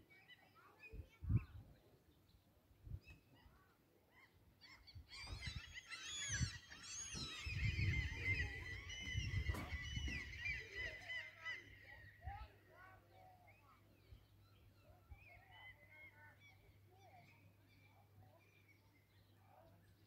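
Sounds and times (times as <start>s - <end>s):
flock of birds calling: 4.2s - 13.2s.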